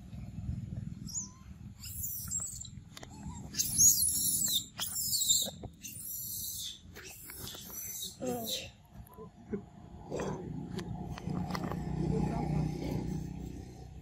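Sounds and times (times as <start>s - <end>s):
monkeys squeaking and chirping: 1.0s - 8.8s
camera handling rumble: 10.7s - 11.9s.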